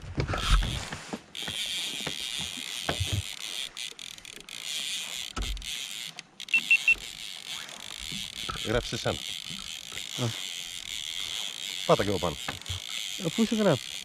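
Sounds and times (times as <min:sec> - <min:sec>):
high electronic beeps: 0:06.5 - 0:07.0.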